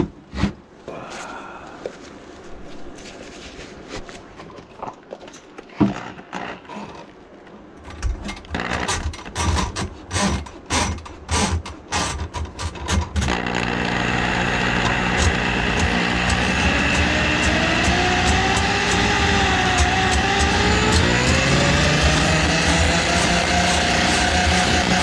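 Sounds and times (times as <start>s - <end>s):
drain auger motor spinning: 8.5s - 25.0s.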